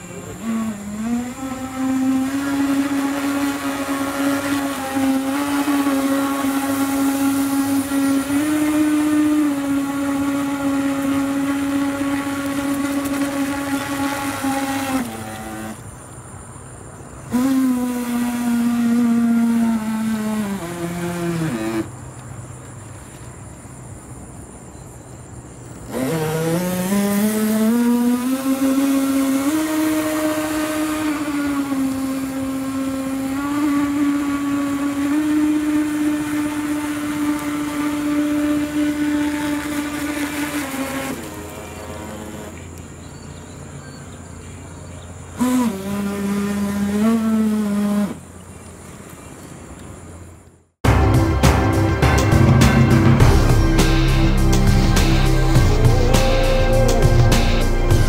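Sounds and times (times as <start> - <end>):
toy jet ski motor whining: 0.0 - 16.4, 17.0 - 23.2, 25.6 - 44.3, 45.0 - 49.6.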